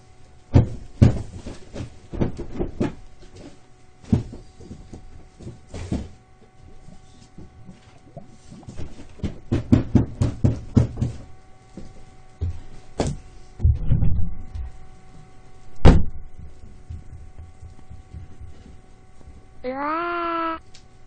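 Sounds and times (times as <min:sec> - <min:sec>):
knocks: 0:08.8 - 0:11.3
heavy thump: 0:12.4 - 0:14.7, 0:15.8 - 0:18.6.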